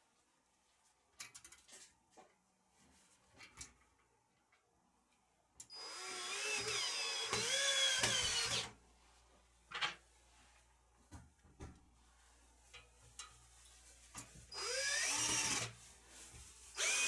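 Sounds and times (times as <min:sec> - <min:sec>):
cordless drill driving screw: 0:05.7 - 0:08.7, 0:14.6 - 0:15.7, 0:16.8 - 0:17.0.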